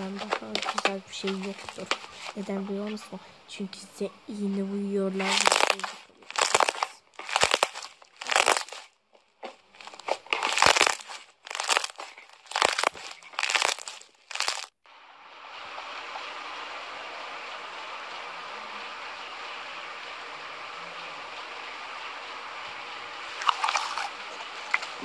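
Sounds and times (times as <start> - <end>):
slime squishing and crackling: 0.0 - 3.0, 5.2 - 14.8, 23.4 - 25.0
steady hiss: 0.0 - 8.8, 14.9 - 25.0.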